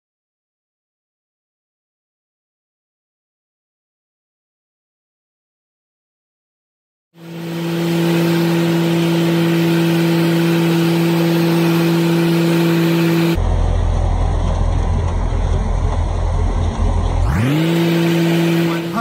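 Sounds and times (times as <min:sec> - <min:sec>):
lawn tractor engine running: 0:07.2 - 0:19.0
low rumble: 0:13.4 - 0:17.3.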